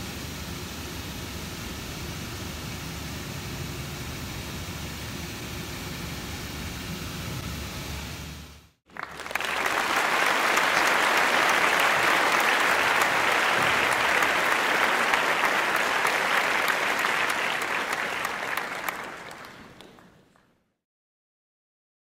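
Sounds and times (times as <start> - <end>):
crowd clapping: 8.9 - 20.6.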